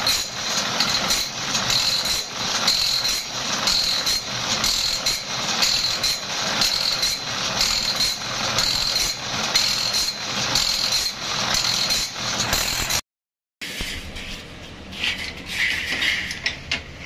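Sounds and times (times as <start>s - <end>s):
pulsing grinding whine: 0.0s - 13.0s.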